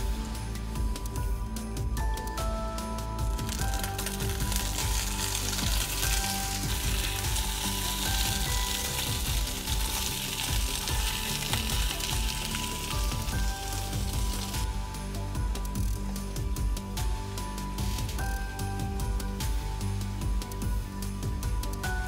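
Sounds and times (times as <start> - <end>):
meat sizzling in a frying pan: 3.3 - 14.7.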